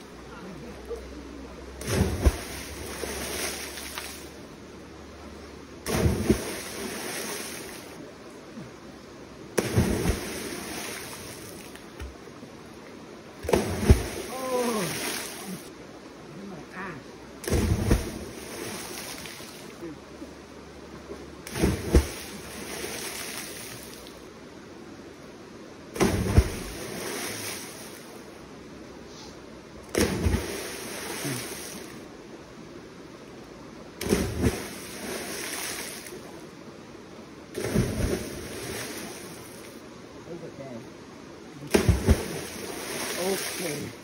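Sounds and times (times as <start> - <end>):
river rushing: 0.0 - 4.4, 5.6 - 8.2, 9.4 - 12.4, 13.2 - 15.8, 29.8 - 32.1, 41.4 - 44.0
people splashing into water: 1.8 - 4.2, 5.8 - 7.6, 9.6 - 11.5, 13.4 - 15.7, 17.4 - 19.6, 21.5 - 24.0, 29.9 - 31.8, 34.0 - 36.1, 37.6 - 39.2, 41.7 - 44.0.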